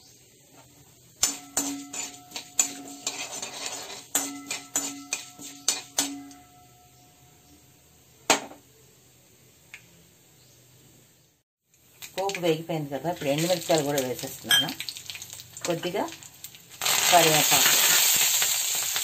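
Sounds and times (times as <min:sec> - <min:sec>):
spatula clanging in metal wok: 0:01.2 - 0:07.2.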